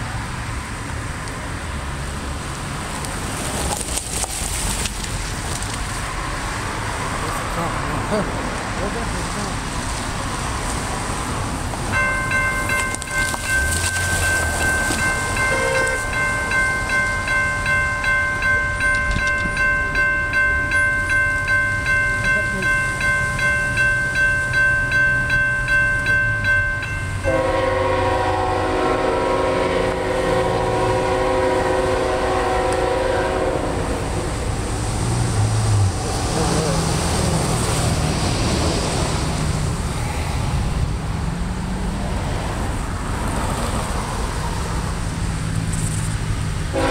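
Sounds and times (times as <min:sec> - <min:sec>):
crossing warning bell ringing: 0:07.6 - 0:34.6
locomotive horn blast: 0:13.2 - 0:16.3, 0:27.2 - 0:34.1.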